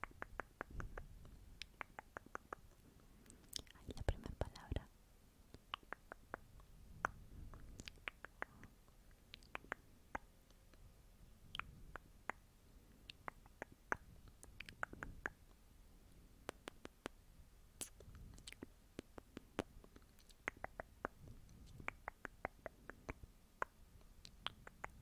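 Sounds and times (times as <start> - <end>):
faint sharp clicks: 16.4 - 17.2.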